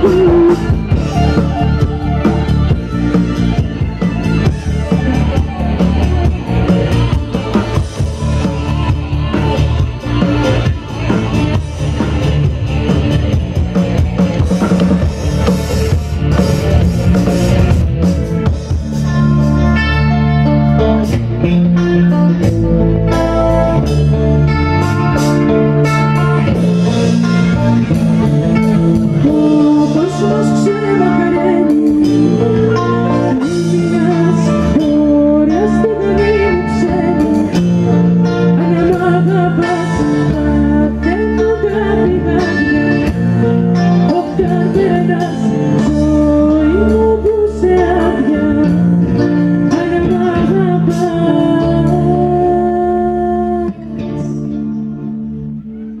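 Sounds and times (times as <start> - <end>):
woman singing: 0.0 - 3.6, 28.6 - 54.6
live band playing: 0.0 - 56.0.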